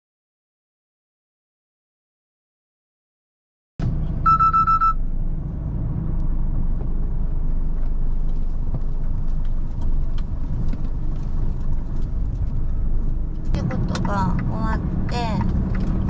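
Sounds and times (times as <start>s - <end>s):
truck engine rumbling: 3.8s - 16.0s.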